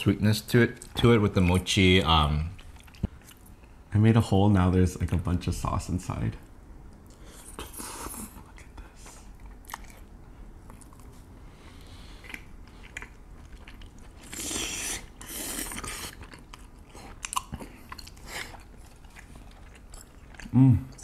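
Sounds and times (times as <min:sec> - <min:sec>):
chewing and biting food: 0:08.5 - 0:21.0.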